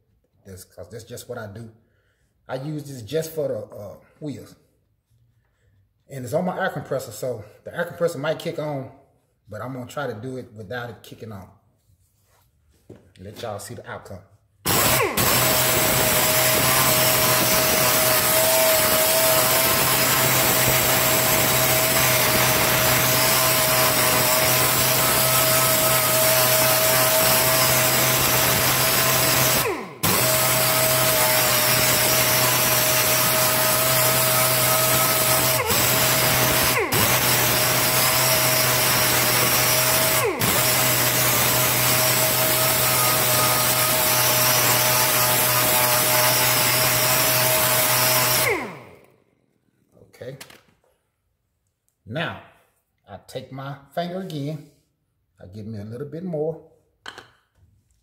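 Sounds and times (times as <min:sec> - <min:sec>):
air polisher whining: 0:14.7 - 0:49.1.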